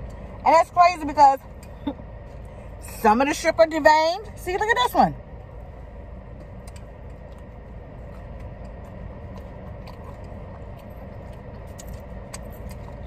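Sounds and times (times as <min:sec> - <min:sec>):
car cabin rumble: 0:00.0 - 0:13.0
person chewing food: 0:06.2 - 0:13.0.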